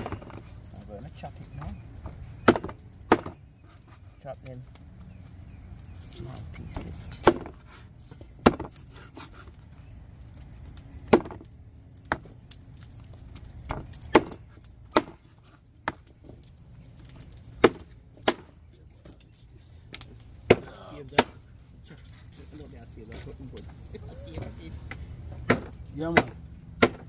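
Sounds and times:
blade chopping chicken: 25.4s - 27.0s.

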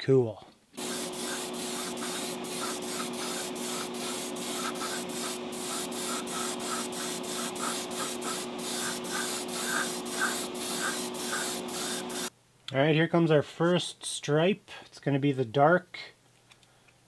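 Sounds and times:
hiss of moving air: 0.8s - 12.3s.

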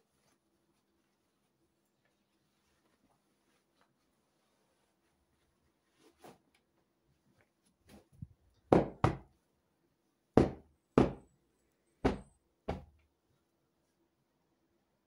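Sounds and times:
fabric rustle: 0.0s - 8.5s.

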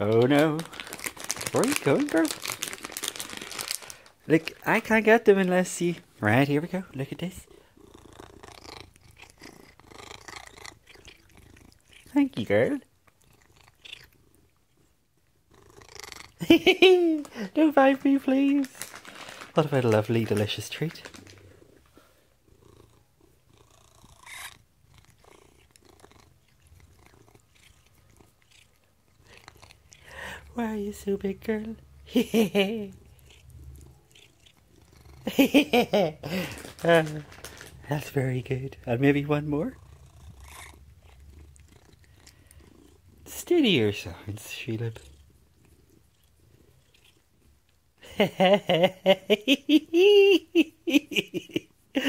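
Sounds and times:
cat purring: 0.0s - 51.7s
cat chirping and trilling: 7.6s - 12.2s, 13.2s - 14.5s, 22.6s - 30.3s, 32.9s - 35.3s, 39.8s - 43.1s.

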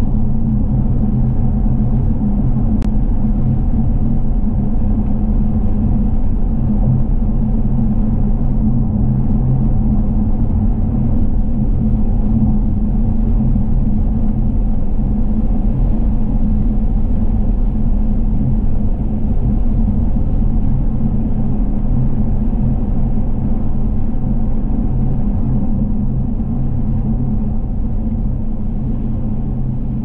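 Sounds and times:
car road and engine rumble: 0.0s - 30.0s.

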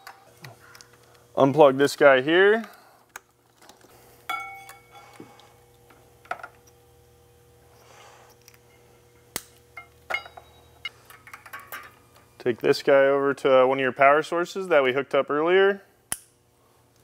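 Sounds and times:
faint steady hum: 0.0s - 17.0s
ringing clink: 4.3s - 5.1s, 9.8s - 10.8s.

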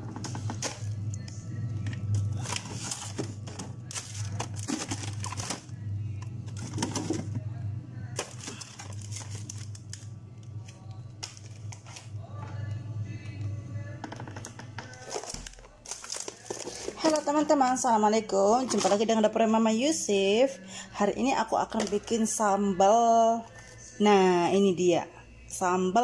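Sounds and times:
steady low hum: 0.0s - 25.8s
plastic bags rustling and crinkling: 2.2s - 5.7s, 8.2s - 10.1s, 14.9s - 17.4s.

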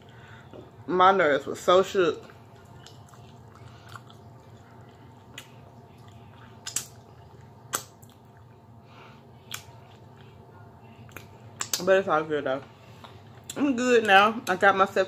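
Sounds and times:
steady low hum: 0.0s - 15.0s
person chewing and lip smacking: 2.2s - 8.6s, 9.4s - 11.9s, 13.0s - 14.6s
wet mouth clicks: 5.3s - 8.5s, 11.1s - 11.8s.

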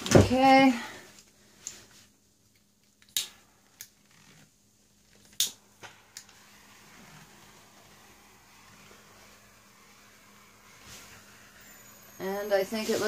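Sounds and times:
torch igniter clicks: 5.3s - 5.6s
torch flame hissing: 5.4s - 13.0s.

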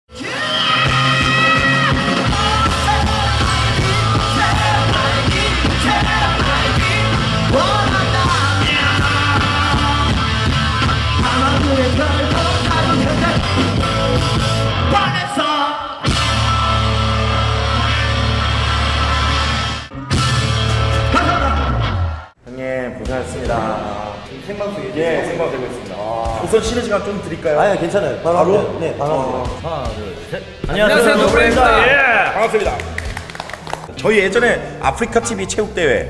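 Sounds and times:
punk rock band playing: 0.6s - 15.4s, 16.0s - 21.8s
shouted vocals: 30.8s - 32.6s.

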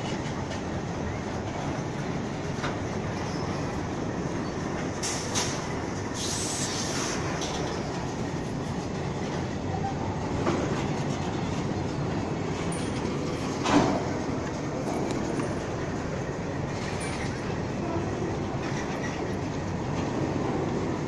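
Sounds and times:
freight train rolling on rails: 0.0s - 21.0s
high-pitched hisses: 6.2s - 7.2s.

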